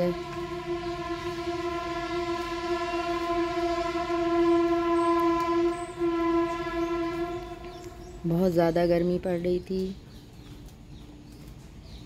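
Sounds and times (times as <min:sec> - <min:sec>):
long steady horn tone: 0:00.0 - 0:09.3.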